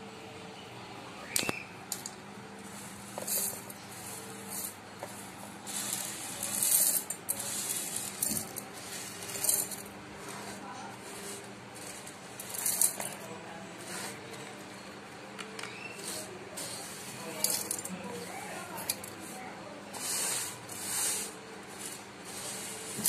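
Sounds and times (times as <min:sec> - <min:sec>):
grains rattling into metal jar: 0:01.9 - 0:13.2, 0:16.0 - 0:18.0, 0:20.0 - 0:23.0.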